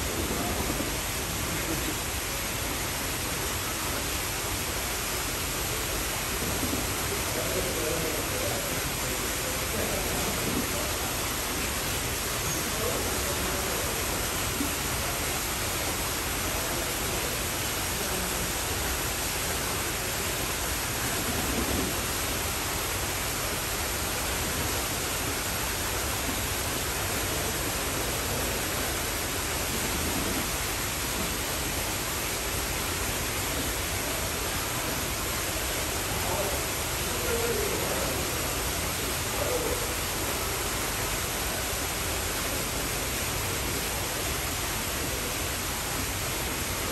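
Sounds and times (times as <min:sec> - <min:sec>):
steady rushing noise: 0:00.0 - 0:46.9
distant voices murmuring: 0:05.8 - 0:22.3, 0:33.4 - 0:43.0.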